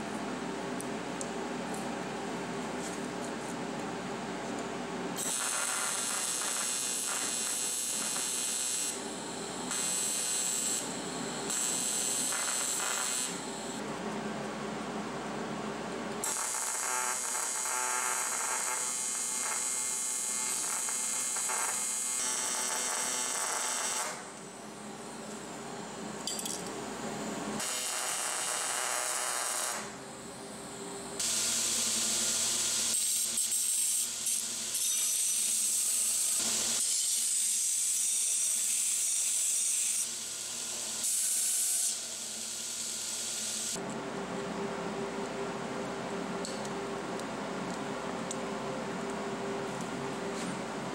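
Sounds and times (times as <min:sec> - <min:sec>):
welding arc buzzing and hissing: 0:05.2 - 0:13.8, 0:16.2 - 0:26.2, 0:27.1 - 0:43.8.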